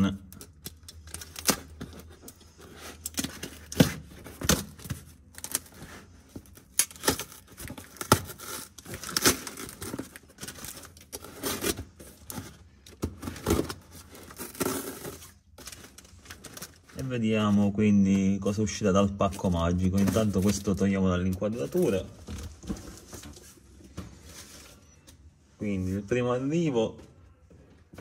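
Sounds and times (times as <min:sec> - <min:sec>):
packing tape ripping: 0:00.3 - 0:02.0, 0:06.6 - 0:11.8, 0:13.4 - 0:16.8.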